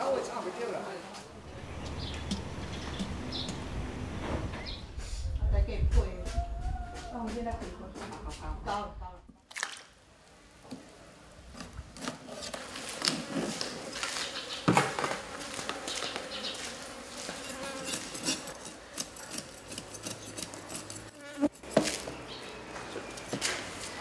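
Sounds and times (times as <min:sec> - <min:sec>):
faint steady buzz: 0:01.2 - 0:05.0
knife scraping fish scales: 0:17.3 - 0:22.0.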